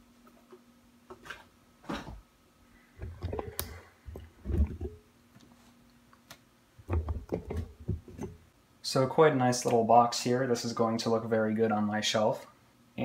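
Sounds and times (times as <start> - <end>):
faint steady hum: 0.0 - 13.0
handling knocks and rustles: 3.0 - 5.8, 6.8 - 8.5.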